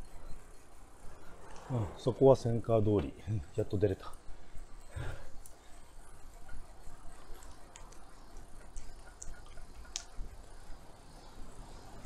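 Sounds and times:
light sharp ticks: 5.4 - 5.6, 7.1 - 10.8.

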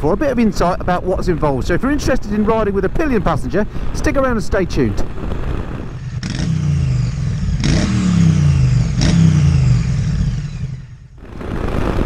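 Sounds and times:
motorcycle engine revving: 5.3 - 12.0.

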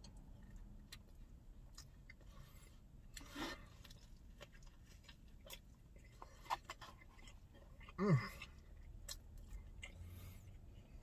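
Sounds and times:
person chewing: 0.0 - 11.0.

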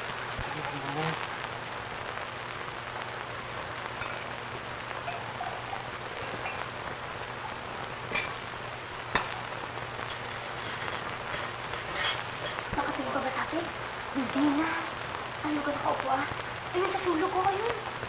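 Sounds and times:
low steady hum: 0.0 - 18.0
old film soundtrack hiss and crackle: 0.0 - 18.0.

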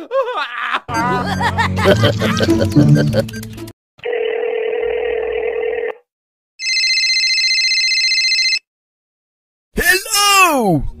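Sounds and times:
telephone ringing: 4.0 - 6.0, 6.6 - 8.7.

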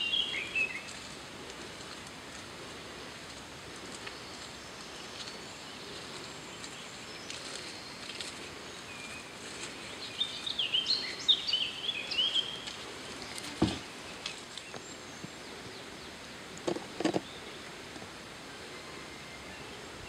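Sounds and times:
steady outdoor hiss: 0.0 - 20.0
short low thump: 13.6 - 13.9.

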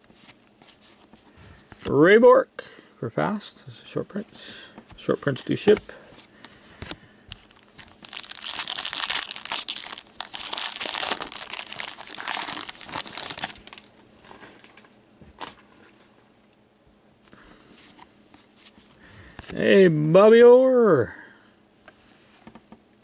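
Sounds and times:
foil wrapper crinkling: 7.4 - 14.8.

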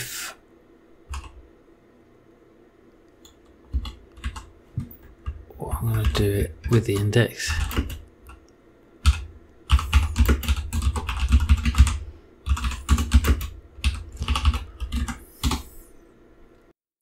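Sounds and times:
typing on computer keyboard: 1.1 - 1.4, 3.2 - 8.4, 9.0 - 15.7.

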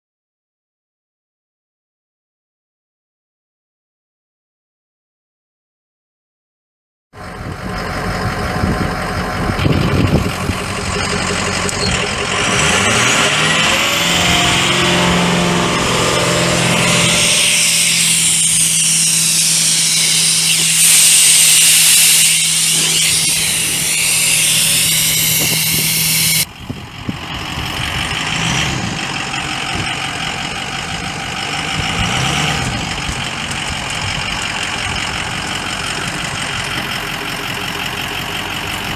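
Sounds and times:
diesel engine running: 7.2 - 38.9
loud hiss of air: 16.7 - 26.5.

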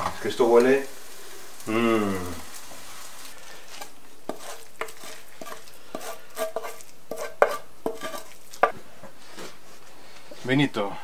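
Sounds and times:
faint sizzle: 0.0 - 11.0
utensil scraping frying pan: 3.5 - 9.6.

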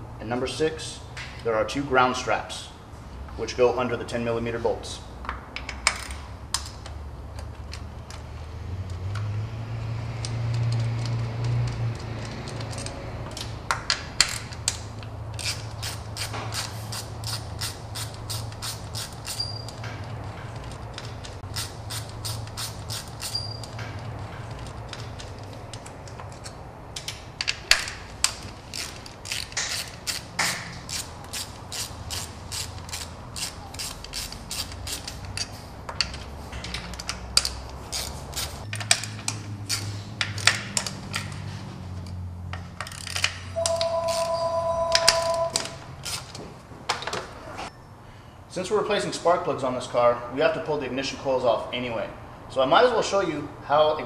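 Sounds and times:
hand ratchet clicking: 10.2 - 41.4, 42.0 - 44.3, 44.9 - 46.4.

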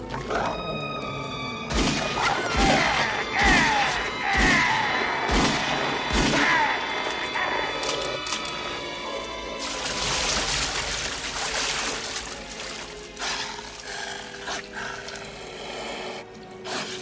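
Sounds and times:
film score music: 0.0 - 17.0
gunshots: 1.7 - 6.6.

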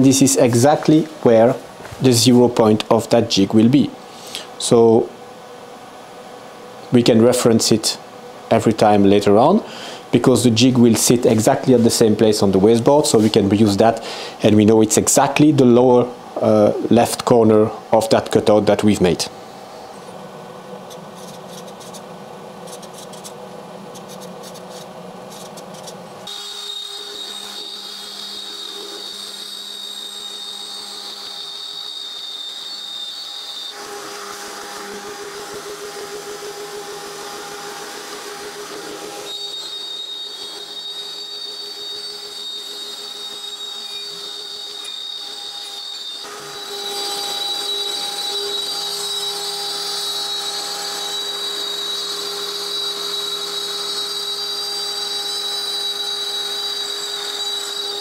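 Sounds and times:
router spindle whining: 24.5 - 58.0.

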